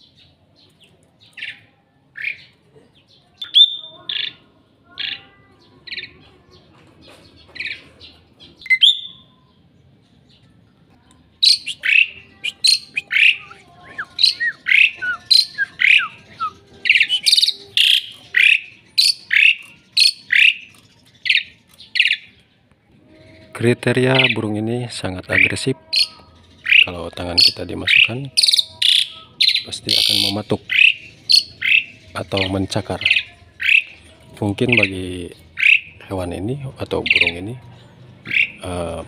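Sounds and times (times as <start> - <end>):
starling calls and whistles: 3.4 - 4.4, 8.6 - 9.3, 11.4 - 22.3, 25.2 - 34.0, 34.6 - 36.0, 38.3 - 38.7.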